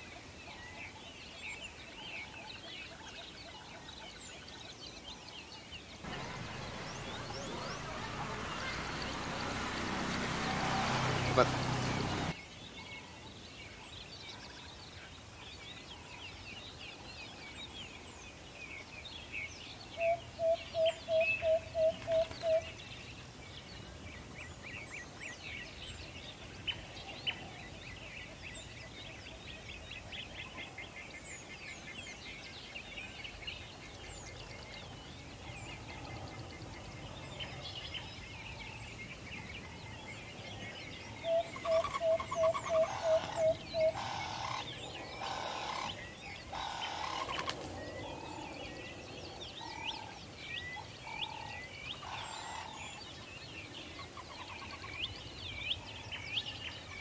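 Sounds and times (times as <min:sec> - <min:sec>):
birds chirping and trilling: 0:00.6 - 0:13.0, 0:13.8 - 0:57.0
bird call of evenly spaced lower notes: 0:04.4 - 0:12.8, 0:18.8 - 0:22.8, 0:24.7 - 0:57.0.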